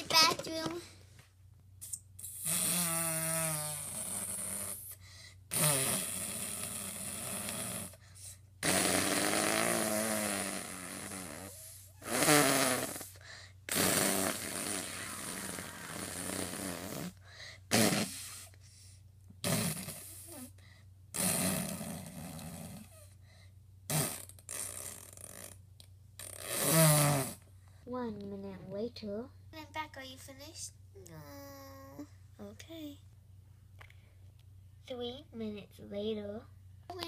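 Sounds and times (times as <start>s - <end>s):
fart-like mouth noises: 1.8s - 8.0s, 8.6s - 18.5s, 19.4s - 20.5s, 21.1s - 23.1s, 23.9s - 25.6s, 26.2s - 27.5s.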